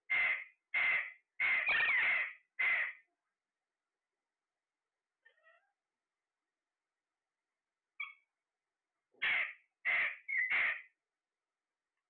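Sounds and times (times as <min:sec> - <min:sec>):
parakeets calling: 0:00.1 - 0:03.0, 0:09.2 - 0:10.9
faint parakeet chatter: 0:00.1 - 0:03.1, 0:05.2 - 0:05.8, 0:08.0 - 0:08.3, 0:09.2 - 0:11.0.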